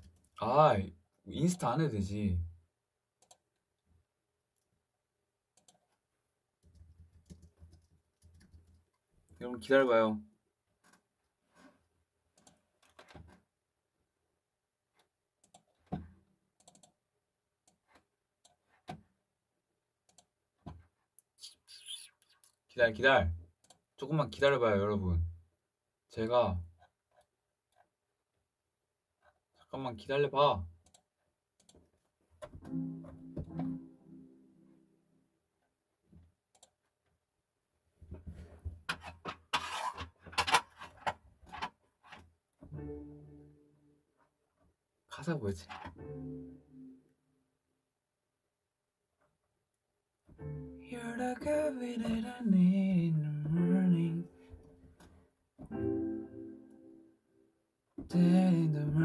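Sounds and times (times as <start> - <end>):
held musical tone: 32.7 - 34.8.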